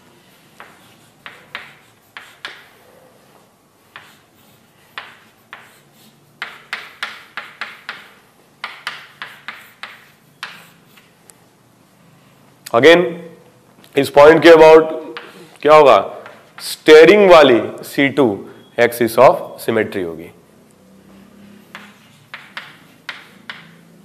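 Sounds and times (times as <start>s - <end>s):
chalk tapping and scratching on board: 0.2s - 11.2s, 21.5s - 24.0s.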